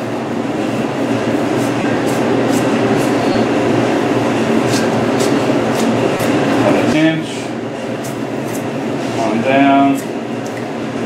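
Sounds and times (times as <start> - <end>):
refrigeration unit humming: 0.0 - 11.0
knife scraping hide: 1.4 - 3.5, 4.6 - 6.9, 8.0 - 9.3.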